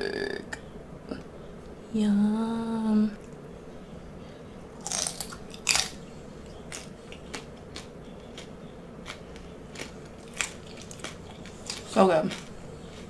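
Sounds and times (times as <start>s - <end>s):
crunchy chewing: 4.8s - 13.0s.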